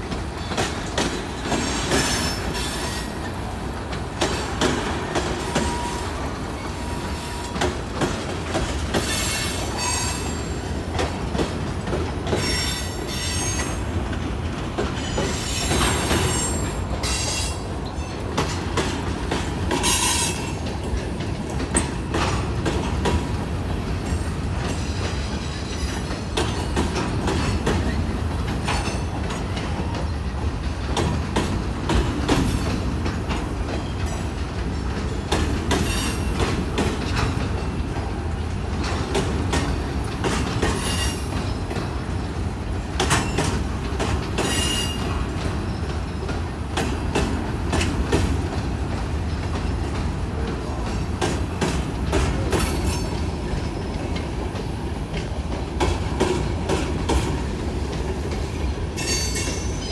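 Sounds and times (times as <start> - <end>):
steel wheels rumbling on rail: 0.0 - 59.9
wheel squeals: 9.0 - 10.6.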